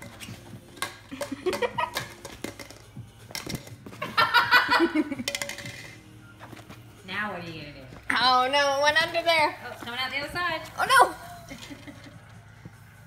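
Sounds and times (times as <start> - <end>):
people laughing: 4.0 - 5.3, 11.3 - 12.4.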